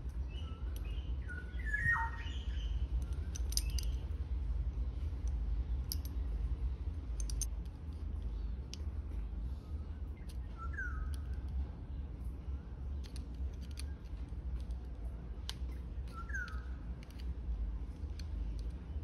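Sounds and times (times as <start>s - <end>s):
small birds chirping: 0.0s - 4.2s, 8.2s - 17.3s
steady low rumble: 0.0s - 19.0s
light metallic clicks: 3.0s - 4.2s, 5.2s - 6.3s, 7.1s - 9.0s.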